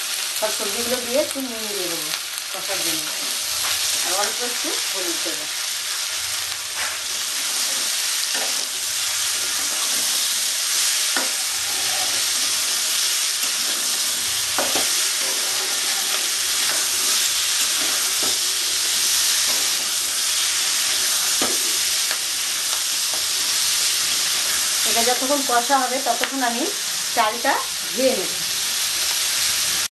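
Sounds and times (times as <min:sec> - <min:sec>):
vegetables sizzling in oil: 0:00.0 - 0:29.9
metal spatula scraping a pan: 0:06.7 - 0:22.2.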